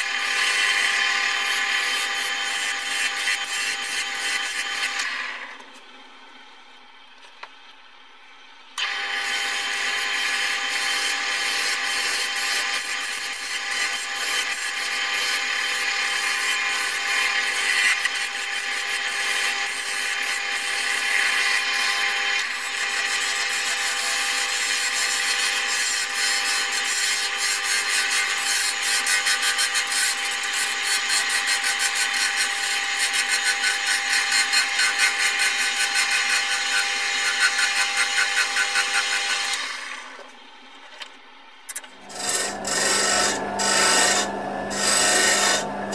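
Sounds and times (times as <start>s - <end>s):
wood lathe motor tone: 8.8s - 40.2s, 42.0s - 45.9s
chisel scraping wood: 42.0s - 45.7s.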